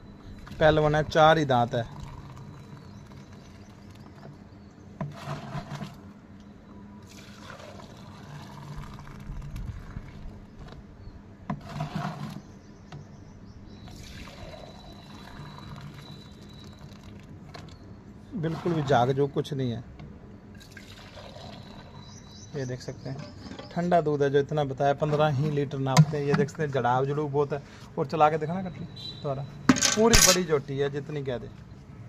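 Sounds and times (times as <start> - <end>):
milk pouring into metal mug: 7.0 - 10.2, 14.0 - 17.3.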